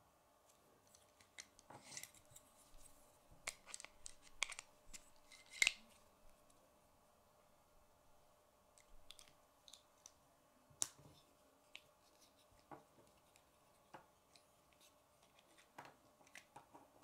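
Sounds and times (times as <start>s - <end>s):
plastic pieces clicking and scraping: 3.4s - 6.0s.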